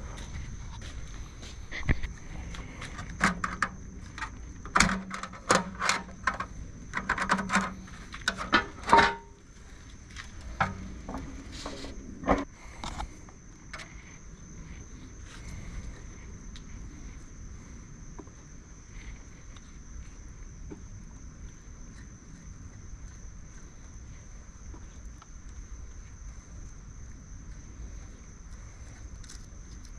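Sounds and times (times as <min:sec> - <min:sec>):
grill latches and lid clattering: 0:04.7 - 0:09.4.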